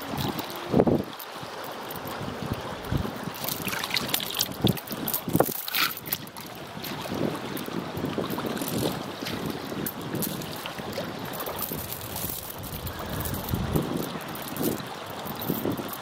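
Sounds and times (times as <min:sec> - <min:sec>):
water splashing and dripping: 0:00.0 - 0:16.0
wind buffeting microphone: 0:00.0 - 0:16.0
metal chain clinking: 0:03.4 - 0:06.2, 0:11.3 - 0:16.0.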